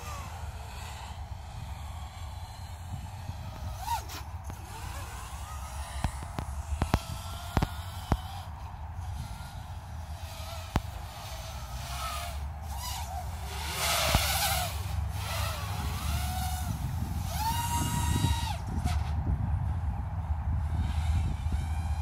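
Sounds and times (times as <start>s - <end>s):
electric motor whining: 0.0s - 22.0s
wind buffeting microphone: 0.0s - 22.0s
sharp clicks: 5.8s - 8.4s.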